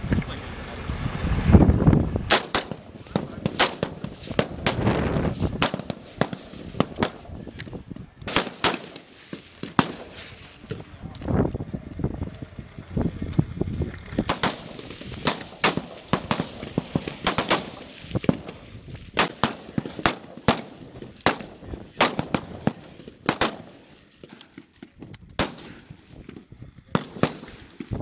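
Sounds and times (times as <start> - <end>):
rifles firing single shots: 2.3 - 7.6, 8.2 - 10.6, 14.2 - 27.9.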